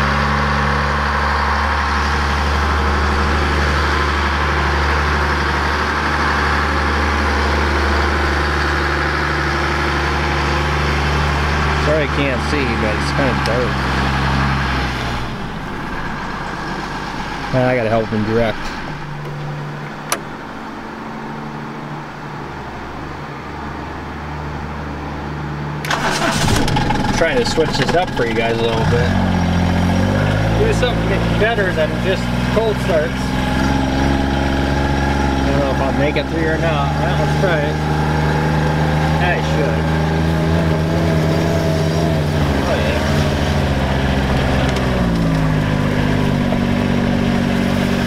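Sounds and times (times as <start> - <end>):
tractor diesel engine running: 0.0 - 48.0
sharp click: 20.1 - 20.3
engine starting: 25.8 - 28.3.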